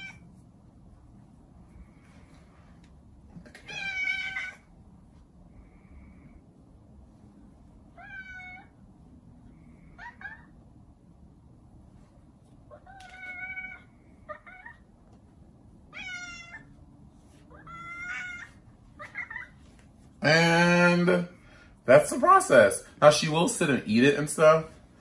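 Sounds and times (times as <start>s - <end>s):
cat meowing: 3.5s - 4.6s, 8.0s - 8.7s, 9.8s - 10.5s, 12.7s - 14.8s, 15.9s - 16.7s, 17.5s - 19.6s.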